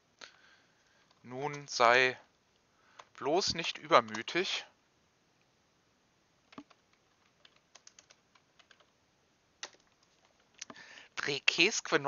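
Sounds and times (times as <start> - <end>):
keyboard typing: 4.0 - 4.4, 6.5 - 8.9, 9.6 - 10.8.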